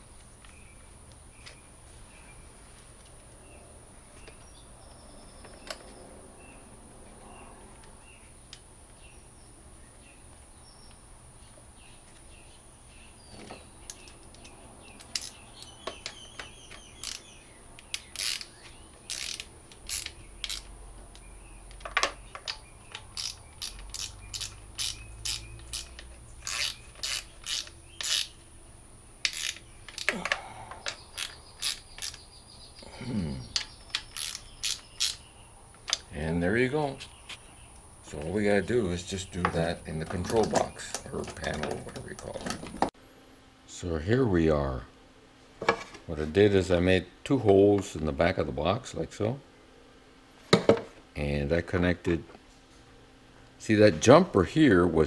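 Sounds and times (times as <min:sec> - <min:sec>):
ratchet wrench clicking: 0:15.0 - 0:15.7, 0:16.7 - 0:18.5, 0:19.1 - 0:20.7, 0:22.9 - 0:28.3, 0:29.2 - 0:30.1, 0:30.8 - 0:32.2, 0:33.6 - 0:35.2.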